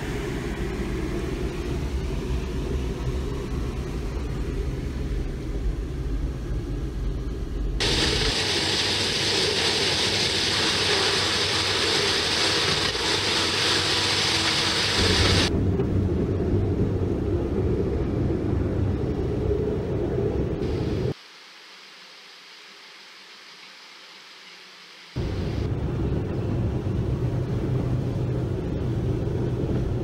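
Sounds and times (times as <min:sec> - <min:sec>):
vehicle rumbling on rails: 0:25.2 - 0:30.0.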